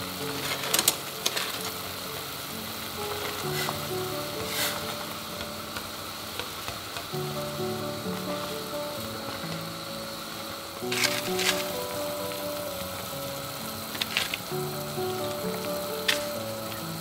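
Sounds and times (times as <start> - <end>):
soft background music: 0.0 - 17.0
water boiling and bubbling: 0.0 - 17.0
chopsticks stirring noodles: 0.3 - 7.5.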